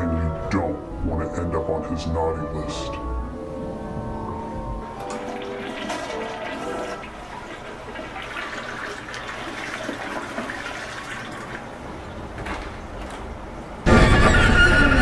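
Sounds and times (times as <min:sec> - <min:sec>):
toilet flushing: 0:04.8 - 0:12.6.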